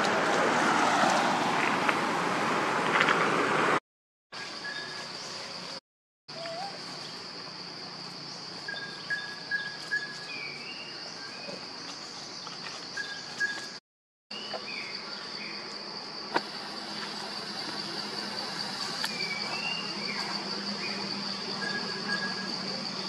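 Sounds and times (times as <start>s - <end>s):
insects droning: 4.4s - 23.0s
short whistled calls: 21.6s - 22.8s.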